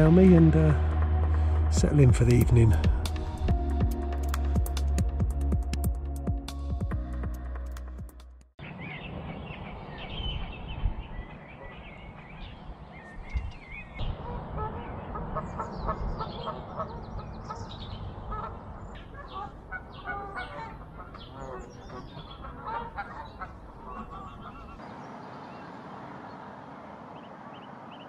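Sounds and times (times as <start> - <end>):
geese honking: 14.2 - 24.8.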